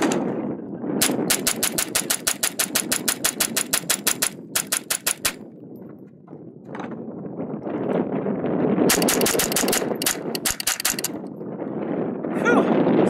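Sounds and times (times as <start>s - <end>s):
rifle firing rapidly: 1.0s - 5.4s, 8.9s - 11.2s.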